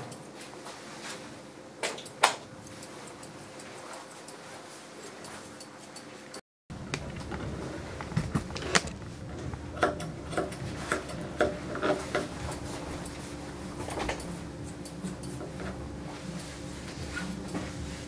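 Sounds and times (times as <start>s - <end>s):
steady low hum: 0.0s - 18.0s
shears snipping: 9.8s - 17.8s.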